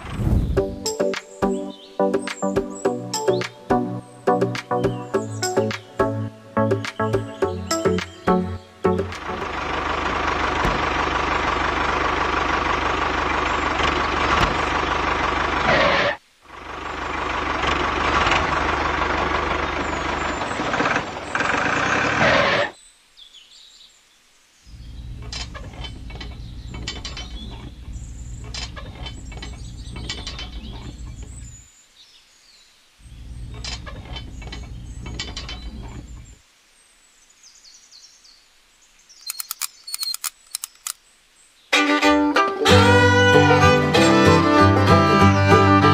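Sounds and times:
toy tractor engine sound: 9.2 - 22.7, 41.8 - 45.9.

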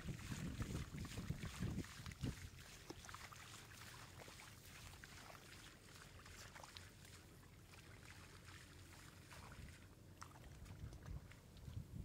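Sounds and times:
wind rumble on microphone: 0.0 - 2.6, 10.5 - 12.0
fish splashing in shallow water: 0.0 - 12.0.

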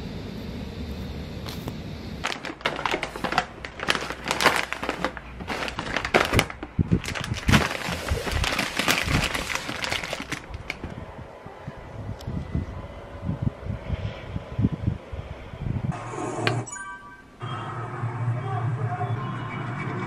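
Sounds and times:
low background hum: 0.0 - 20.0
plastic bags crinkling: 2.2 - 11.0.

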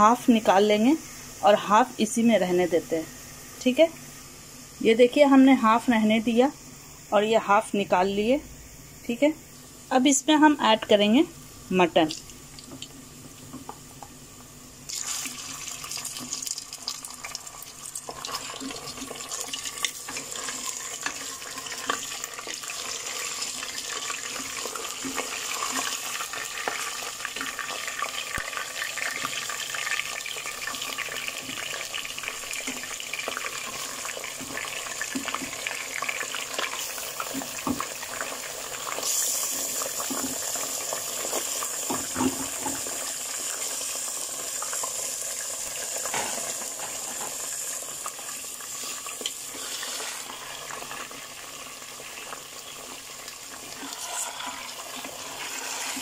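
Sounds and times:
meat sizzling in hot oil: 12.1 - 56.0.

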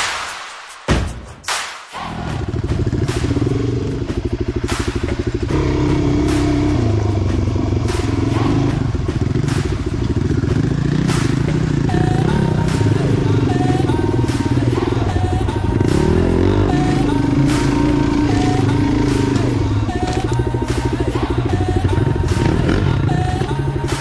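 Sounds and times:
dirt bike engine: 2.0 - 24.0.

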